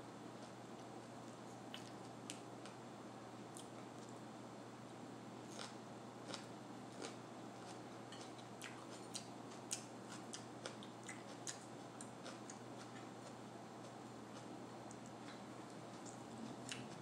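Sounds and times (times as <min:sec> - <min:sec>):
faint steady hum: 0:00.0 - 0:17.0
crisp chewing crunches: 0:05.5 - 0:17.0.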